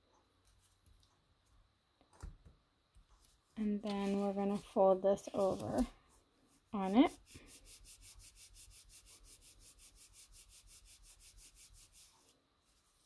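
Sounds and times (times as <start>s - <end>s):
hands rubbing over cardstock: 3.2s - 5.9s, 6.5s - 13.0s.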